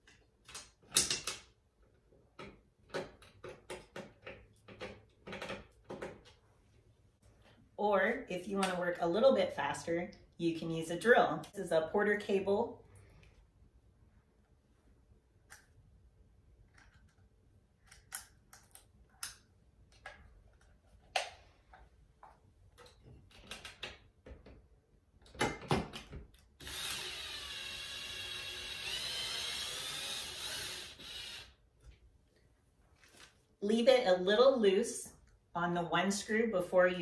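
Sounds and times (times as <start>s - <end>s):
cordless drill motor whining: 26.6s - 31.6s.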